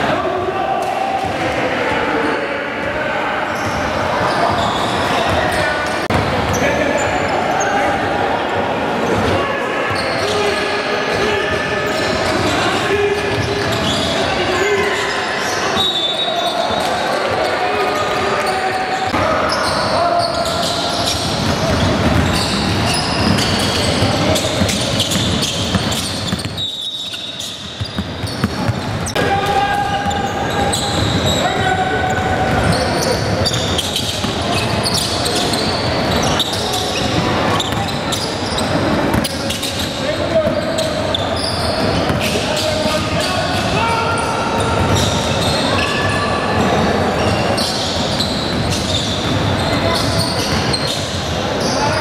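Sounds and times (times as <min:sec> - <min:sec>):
shoes squeaking: 0:14.9 - 0:29.2, 0:30.0 - 0:52.0
basketball bouncing on gym floor: 0:21.3 - 0:26.6, 0:27.4 - 0:29.2.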